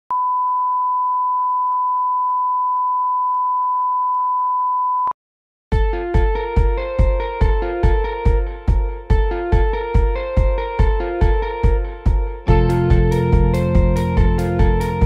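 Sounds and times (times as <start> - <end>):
electronic music with heavy bass: 5.8 - 15.0.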